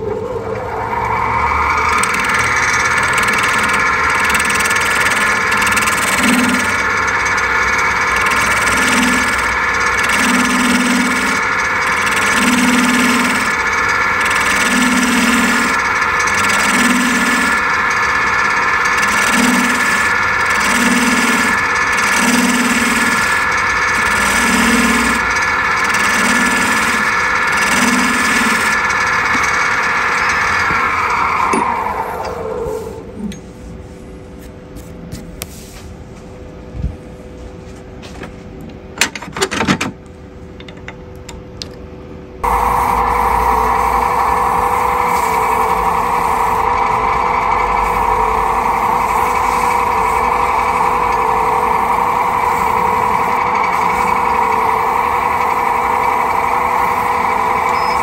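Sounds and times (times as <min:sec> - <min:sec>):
wood lathe running: 0:00.0 - 0:32.7, 0:42.4 - 0:58.0
hand tool scraping spinning wood: 0:01.8 - 0:31.5, 0:42.4 - 0:58.0.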